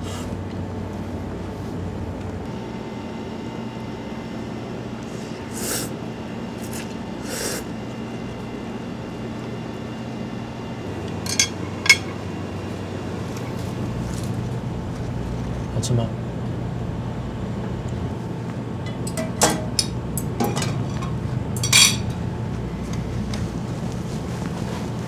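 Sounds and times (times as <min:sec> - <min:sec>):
low room hum: 0:00.0 - 0:25.0
short hissing sounds: 0:05.5 - 0:05.9, 0:06.7 - 0:07.7
utensils clinking against dish: 0:11.2 - 0:12.2, 0:18.9 - 0:22.2.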